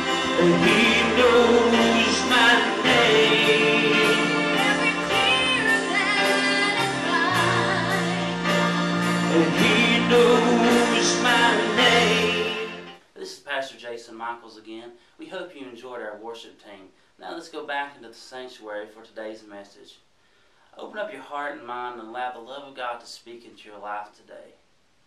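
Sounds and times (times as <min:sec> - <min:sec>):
instrumental backing with beat: 0:00.0 - 0:13.0
worship team singing gospel: 0:00.0 - 0:13.0.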